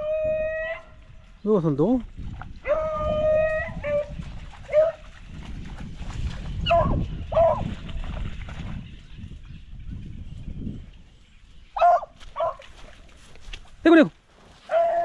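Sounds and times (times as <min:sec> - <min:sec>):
dog baying: 0:14.7 - 0:15.0.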